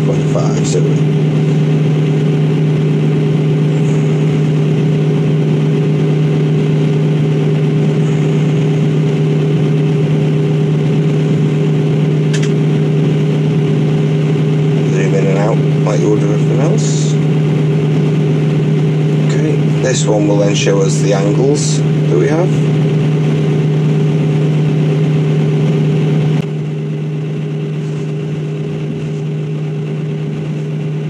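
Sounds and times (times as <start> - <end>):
diesel engine idling: 0.0 - 31.0
short click: 12.3 - 12.6.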